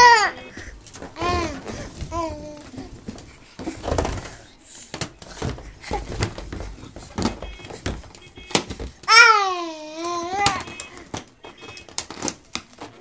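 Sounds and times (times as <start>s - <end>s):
balloons thumping and rustling: 0.0s - 13.0s.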